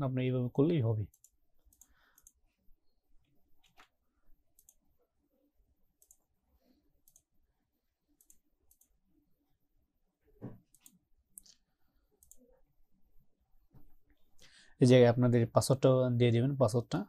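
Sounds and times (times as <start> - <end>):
faint computer mouse clicks: 1.1 - 2.4, 4.6 - 4.8, 6.0 - 6.2, 8.2 - 9.0, 10.7 - 11.6, 12.2 - 12.5.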